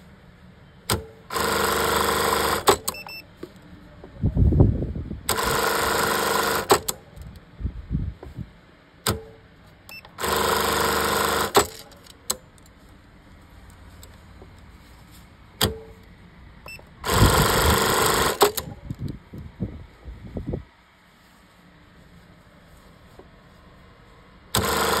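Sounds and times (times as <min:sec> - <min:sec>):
sewing machine stitching: 0:01.3 - 0:03.0, 0:05.3 - 0:07.0, 0:10.1 - 0:12.1, 0:17.0 - 0:18.7, 0:24.6 - 0:25.0
sharp clicks: 0:18.1 - 0:19.5.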